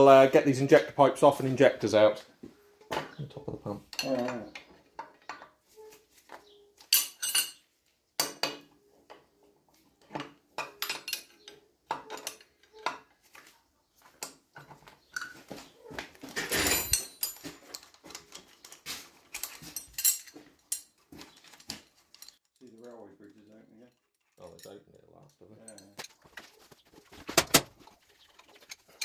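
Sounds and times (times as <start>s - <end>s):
spanners clinking on metal: 3.8s - 5.9s, 6.5s - 9.2s, 10.0s - 13.1s, 16.2s - 26.6s
metallic scraping rattle: 21.4s - 29.0s.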